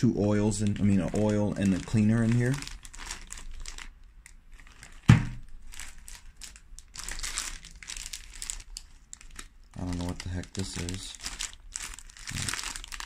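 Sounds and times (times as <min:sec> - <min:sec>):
plastic bags crinkling: 0:00.2 - 0:13.0
sharp thump: 0:05.1 - 0:05.4.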